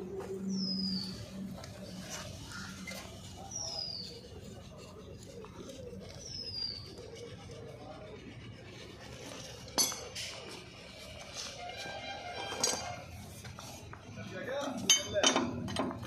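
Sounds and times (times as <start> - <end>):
faint background voices: 0.0 - 16.0
bird whistling: 0.5 - 1.2.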